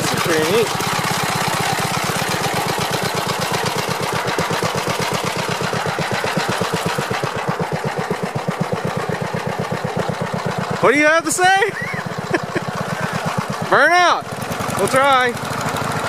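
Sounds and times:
single-cylinder engine running: 0.0s - 16.0s.

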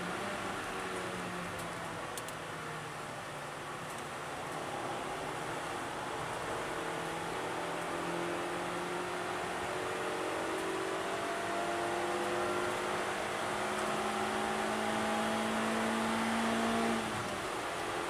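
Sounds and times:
road and wind noise: 0.0s - 18.0s
car engine accelerating: 4.2s - 17.9s.

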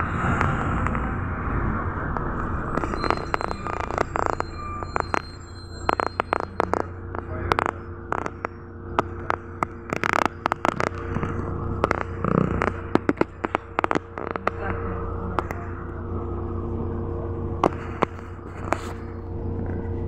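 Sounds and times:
bus engine idling: 0.0s - 2.8s
sharp clicks and knocks: 2.2s - 14.6s.

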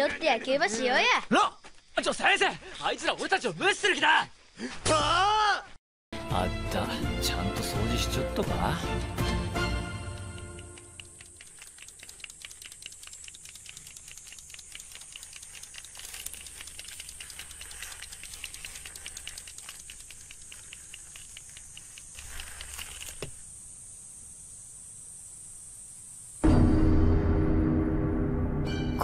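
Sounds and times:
toy tanks ticking rapidly: 9.8s - 23.3s
faint high hiss: 10.9s - 26.4s.

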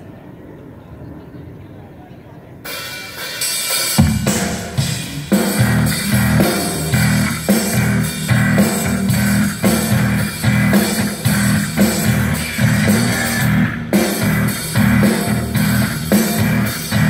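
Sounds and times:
heavy electric guitar riff: 2.7s - 17.0s
drum hits: 4.0s - 17.0s.

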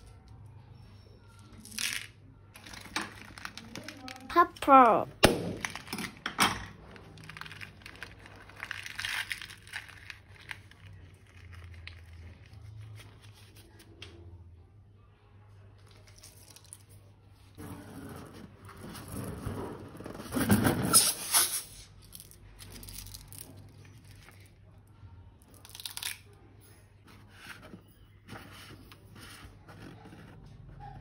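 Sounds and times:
plastic crinkling: 2.6s - 4.3s, 6.8s - 13.8s
slime squelching and crunching: 6.8s - 13.7s.

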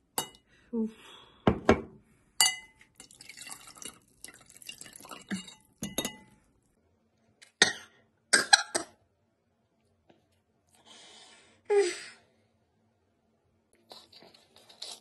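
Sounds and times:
metal spoon clinking in glass: 2.4s - 3.9s, 4.6s - 6.4s.

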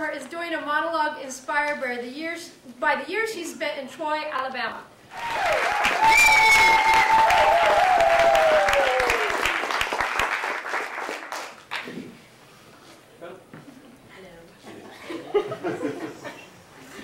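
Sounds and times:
high whoops: 5.1s - 9.5s
audience applauding: 5.1s - 11.9s.

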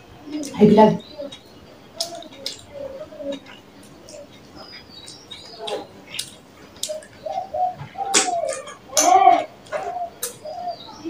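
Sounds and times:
low humming coos: 0.0s - 11.0s
lip smacks and chewing: 1.3s - 8.9s.

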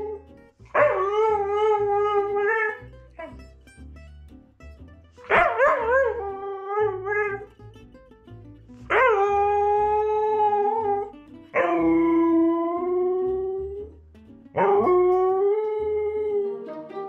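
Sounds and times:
dog howling: 0.0s - 3.3s, 5.3s - 7.5s, 8.9s - 13.8s, 14.6s - 16.5s.

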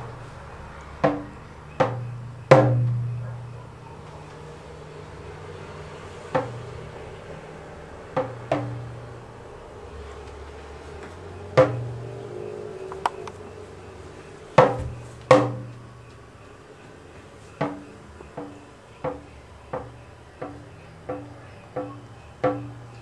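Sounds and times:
hand drum strokes: 1.0s - 3.3s, 11.5s - 13.0s.

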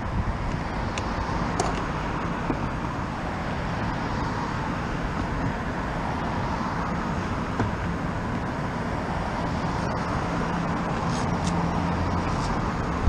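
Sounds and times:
cars driving past: 0.0s - 13.0s.

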